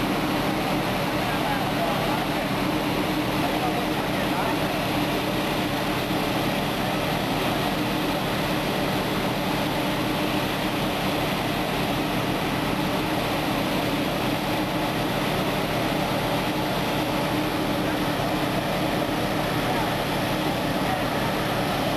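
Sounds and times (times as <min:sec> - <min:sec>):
fire engine droning: 0:00.0 - 0:21.9.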